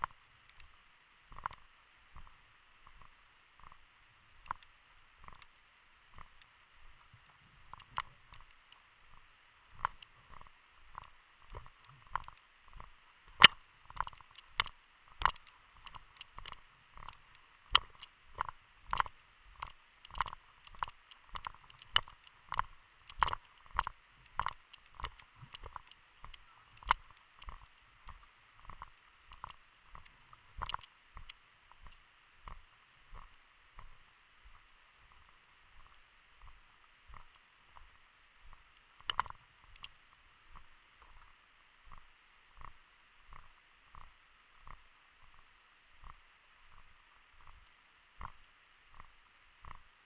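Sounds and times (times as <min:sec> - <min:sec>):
faint steady hiss: 0:00.0 - 0:50.0
gear clicking: 0:09.8 - 0:32.6.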